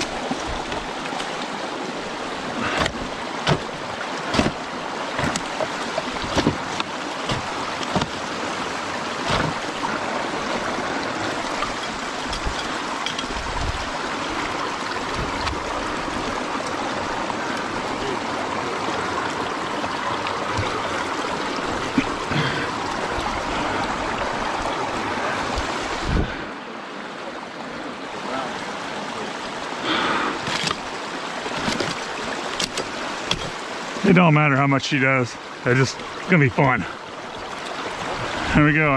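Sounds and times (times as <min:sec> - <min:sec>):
water rushing: 0:00.0 - 0:38.9
sticks snapping and knocking: 0:02.8 - 0:08.2, 0:30.4 - 0:30.9, 0:31.6 - 0:33.6.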